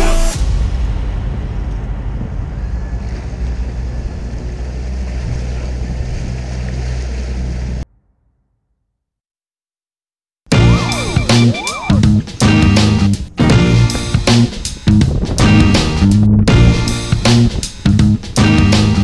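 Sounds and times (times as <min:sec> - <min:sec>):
water rushing past hull: 0:00.0 - 0:07.9
outboard motor running: 0:03.8 - 0:07.8
wind on microphone: 0:14.1 - 0:18.3.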